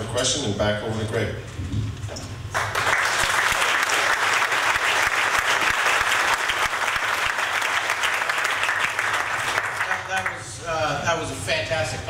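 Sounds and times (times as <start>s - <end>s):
crowd applauding: 2.5s - 10.4s.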